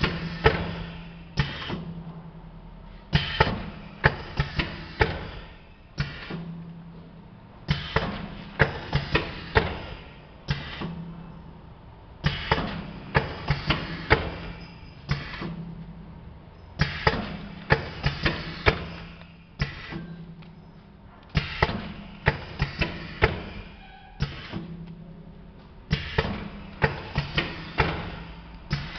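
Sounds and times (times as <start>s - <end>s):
packing machine mechanical clacks: 0.0s - 2.4s, 3.0s - 6.9s, 7.6s - 11.3s, 12.2s - 15.9s, 16.7s - 28.9s
machine low hum: 0.0s - 28.9s.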